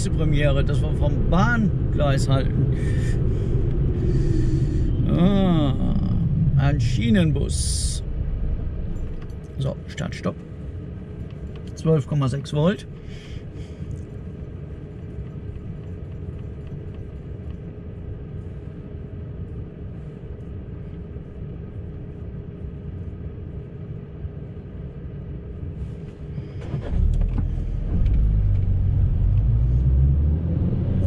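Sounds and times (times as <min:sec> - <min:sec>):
car engine starting: 0:00.0 - 0:09.8, 0:26.1 - 0:31.0
engine and road rumble: 0:00.0 - 0:31.0
low cabin rumble: 0:00.0 - 0:31.0
faint even hum: 0:01.3 - 0:27.5.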